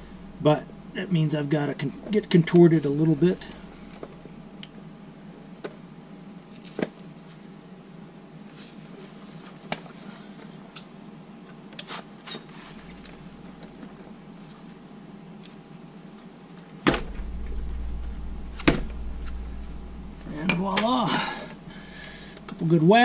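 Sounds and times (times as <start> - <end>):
low rumble: 0.0 - 4.8, 16.9 - 23.0.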